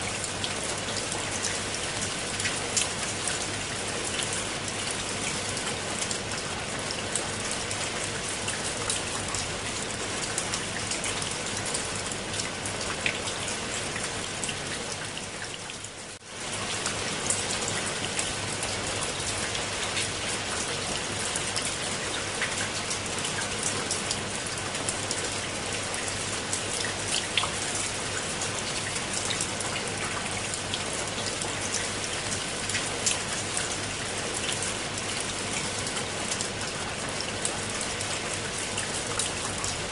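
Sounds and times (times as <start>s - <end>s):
rain on leaves and stone steps: 0.0s - 39.9s.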